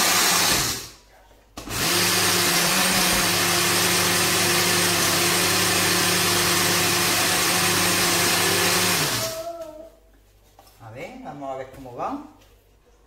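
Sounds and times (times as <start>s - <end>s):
blender grinding oat flakes: 0.0s - 0.9s, 1.6s - 9.4s.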